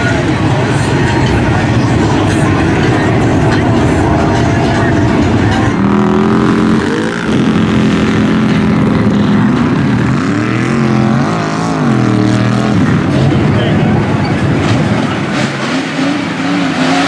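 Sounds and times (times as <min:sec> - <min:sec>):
vehicle engine revving: 0:00.0 - 0:17.0.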